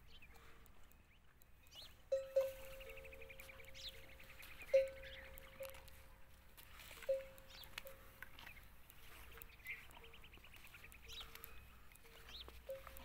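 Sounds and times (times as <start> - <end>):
birds chirping: 0.0 - 13.0
camel bell ringing: 2.1 - 6.2, 6.8 - 8.2, 11.4 - 13.0.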